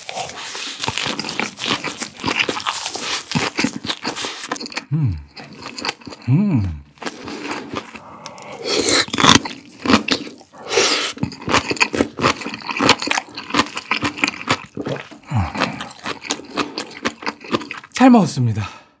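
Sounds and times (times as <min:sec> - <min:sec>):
wet crunchy chewing: 0:00.0 - 0:18.0
person humming: 0:04.9 - 0:05.2, 0:06.2 - 0:06.9.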